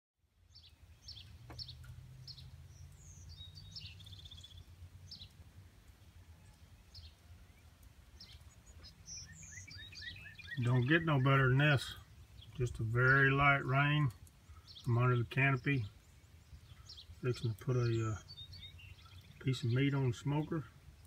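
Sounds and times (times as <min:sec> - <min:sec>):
bird chirps and calls: 0:00.5 - 0:05.4, 0:06.4 - 0:21.0.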